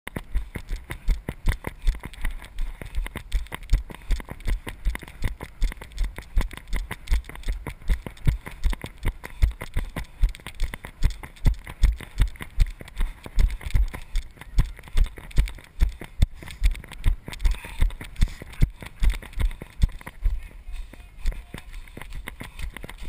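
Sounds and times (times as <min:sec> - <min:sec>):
camera rattling: 0:00.1 - 0:23.0
running footsteps on muddy grass: 0:00.1 - 0:23.0.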